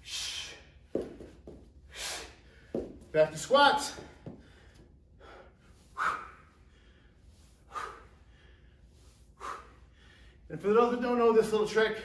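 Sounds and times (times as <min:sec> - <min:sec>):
man breathing hard: 0:00.0 - 0:00.9, 0:01.8 - 0:03.0, 0:04.0 - 0:10.5
sharp exhales: 0:04.4 - 0:10.4.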